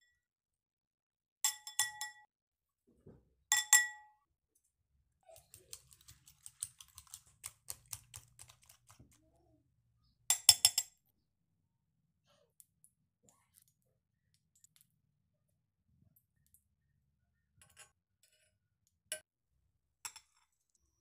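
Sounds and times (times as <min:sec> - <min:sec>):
spoon tapping glass bowl: 0:01.5 - 0:02.2
spoon beating eggs in glass bowl: 0:05.3 - 0:09.4.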